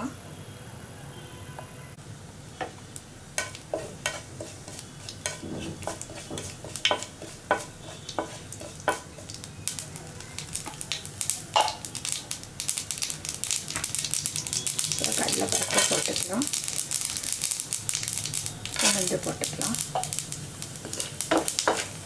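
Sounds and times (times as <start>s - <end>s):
seeds sizzling in hot oil: 2.4s - 22.0s
mustard seeds popping: 8.9s - 22.0s.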